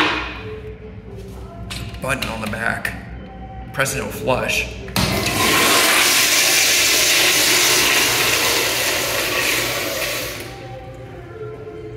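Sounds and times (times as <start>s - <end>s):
toilet flushing: 5.0s - 10.6s.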